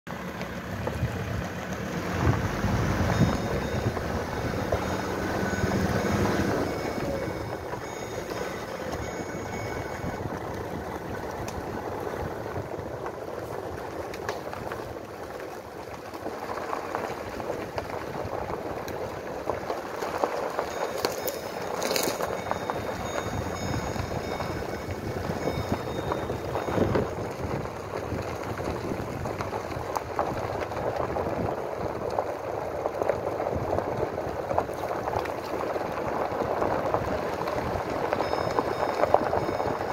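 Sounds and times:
vehicle driving slowly: 0:00.1 - 0:39.9
strong wind buffeting microphone: 0:21.6 - 0:39.9.

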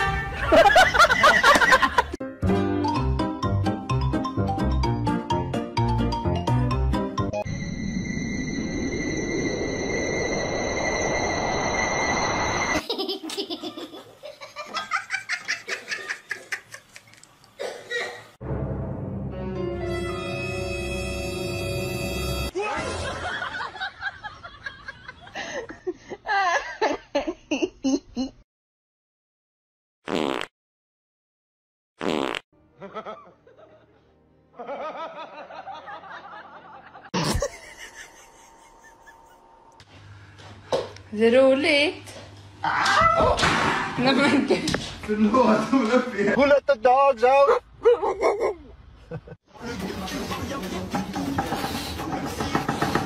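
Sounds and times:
person laughing: 0:36.9 - 0:39.6, 0:47.8 - 0:49.4.

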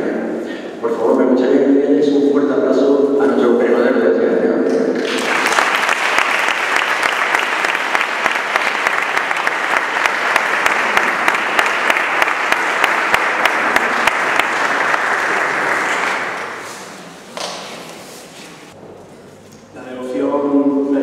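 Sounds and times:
sharp close claps: 0:05.0 - 0:16.6
audience applauding: 0:05.0 - 0:16.9.

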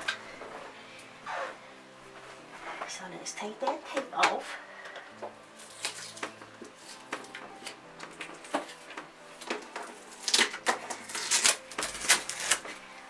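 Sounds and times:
tape scratching and clicking: 0:05.6 - 0:12.8
tape tearing crackle: 0:05.6 - 0:12.9.

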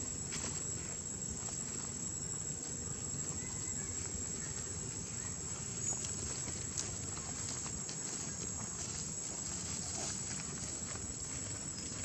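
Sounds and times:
faint ticks and rustles: 0:00.0 - 0:12.0
high-pitched insect drone: 0:00.0 - 0:12.0.

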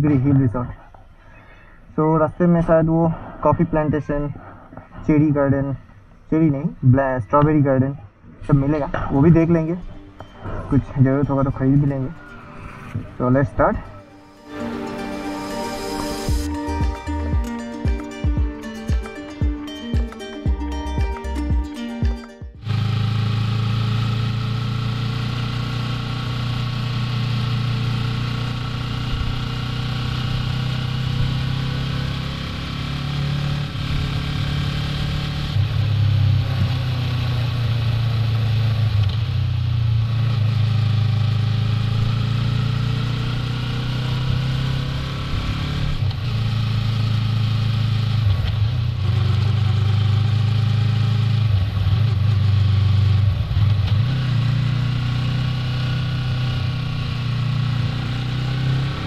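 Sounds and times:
motorcycle engine running: 0:22.5 - 0:59.0.

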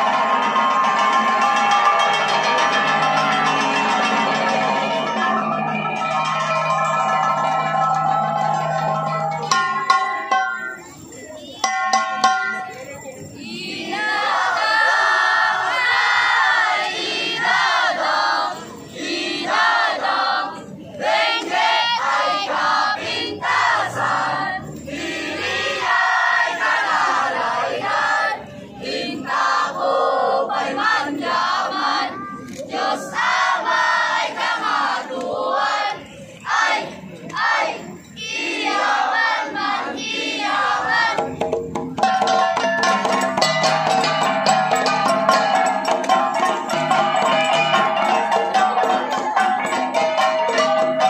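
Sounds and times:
gong music: 0:00.0 - 0:10.8
children chanting and shouting: 0:00.0 - 0:41.4, 0:42.0 - 0:51.0
crowd noise: 0:00.0 - 0:51.0.

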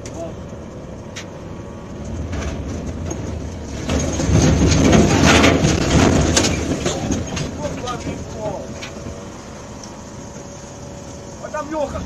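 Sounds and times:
logs clattering: 0:02.1 - 0:09.2.

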